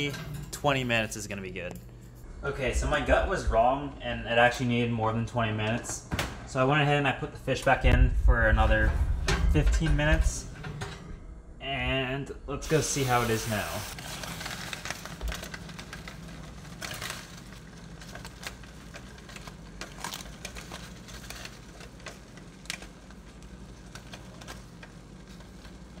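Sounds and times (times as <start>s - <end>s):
steady low hum: 0.0s - 26.0s
aluminium foil crinkling: 13.0s - 26.0s.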